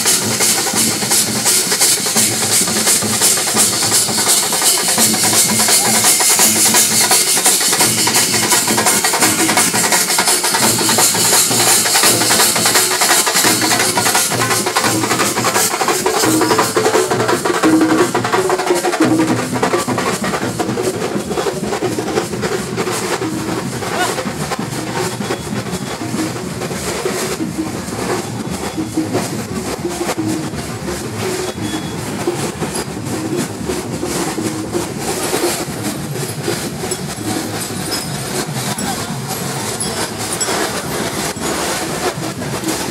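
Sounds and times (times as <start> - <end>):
crowd voices: 0.0 - 42.9
drummers playing fast rhythm: 0.0 - 42.9.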